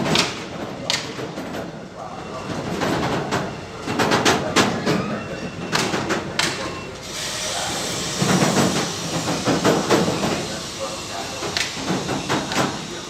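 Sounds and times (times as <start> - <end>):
train rolling noise hiss: 6.9 - 13.0
train wheels clattering over rail joints: 8.0 - 10.6, 11.2 - 13.0.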